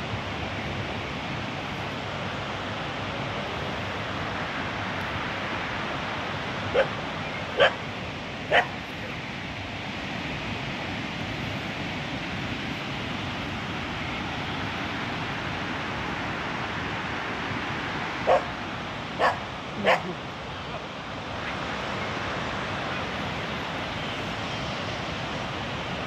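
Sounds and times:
dog barking: 0:06.7 - 0:07.0, 0:07.6 - 0:07.8, 0:08.5 - 0:08.8, 0:18.3 - 0:18.5, 0:19.2 - 0:20.2.

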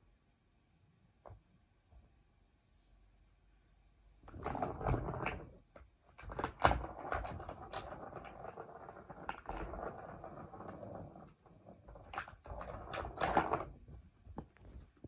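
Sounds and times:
ball rattling in plastic track: 0:04.2 - 0:14.6.

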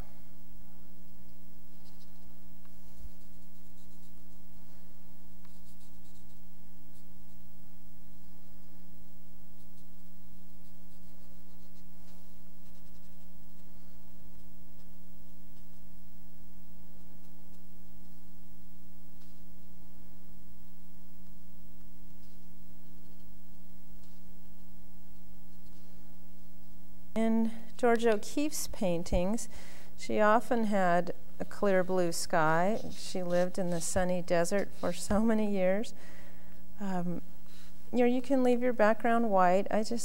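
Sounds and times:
steady electrical hum: 0:00.0 - 0:40.0
swab and pastel scratching paper: 0:01.8 - 0:04.4, 0:05.4 - 0:07.4, 0:09.6 - 0:14.9, 0:31.4 - 0:35.4.

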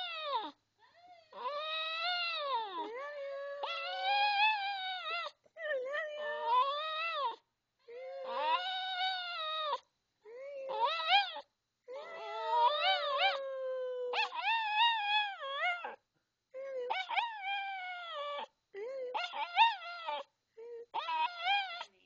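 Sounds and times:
dog howling: 0:01.3 - 0:05.3, 0:06.2 - 0:09.8, 0:10.7 - 0:16.0, 0:20.9 - 0:21.9.

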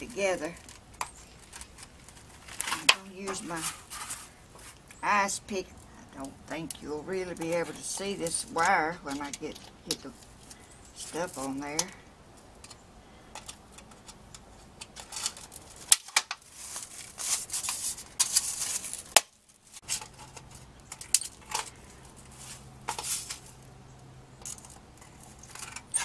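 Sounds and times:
metal sheet crinkling and rattling: 0:00.0 - 0:04.9, 0:13.4 - 0:23.6.

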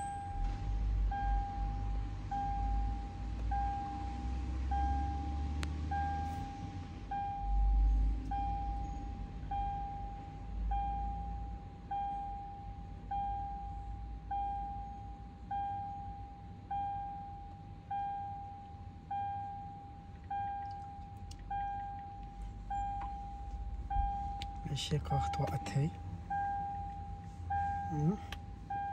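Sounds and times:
low rumble: 0:00.0 - 0:11.5, 0:19.2 - 0:28.9
car warning chime: 0:00.0 - 0:28.9.

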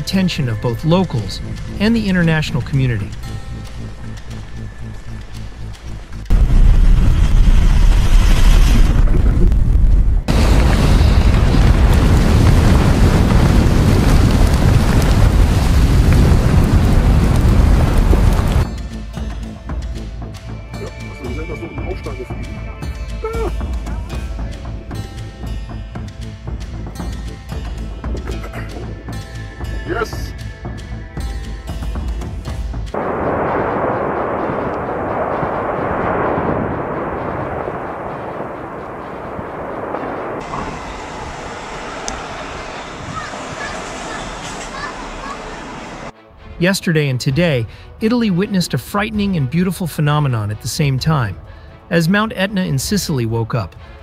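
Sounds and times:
wind buffeting microphone: 0:01.4 - 0:18.7, 0:33.0 - 0:45.4
volcanic eruption rumbling: 0:06.0 - 0:18.7, 0:33.0 - 0:46.6
lava fountain roaring: 0:06.3 - 0:18.7, 0:33.0 - 0:44.1.

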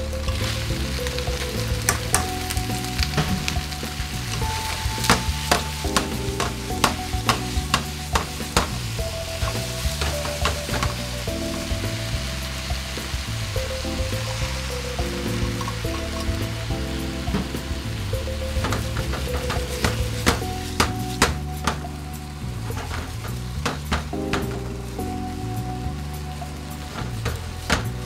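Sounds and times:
food sizzling in a frying pan: 0:00.0 - 0:28.0
chopsticks stirring food: 0:00.2 - 0:11.3.

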